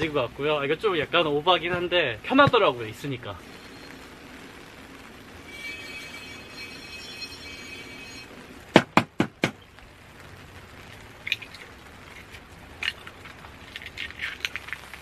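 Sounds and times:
eggshell crackling open: 11.2s - 15.0s.

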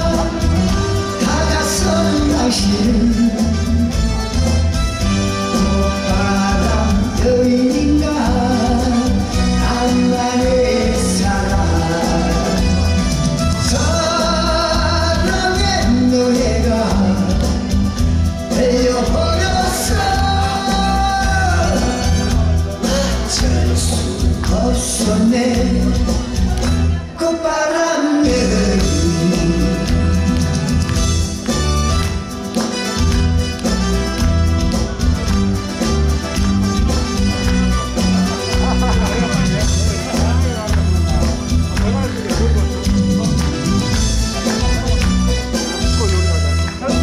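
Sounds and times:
man singing into a microphone: 0.0s - 4.0s, 5.5s - 30.4s
backing music with bass beat: 0.0s - 27.1s, 28.2s - 47.0s.

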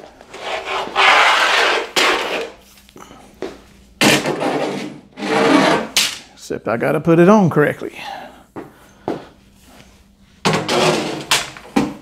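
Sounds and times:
metal track scraping along frame: 4.4s - 5.9s.

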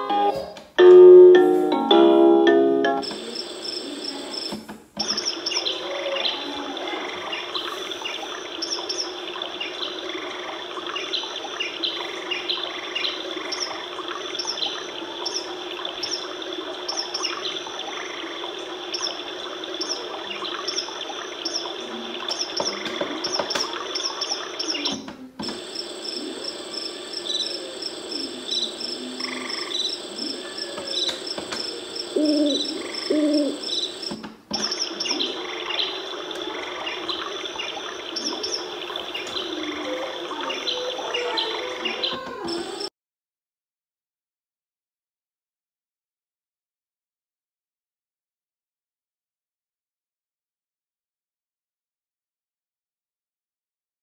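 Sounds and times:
recorded birds chirping: 2.0s - 42.9s.

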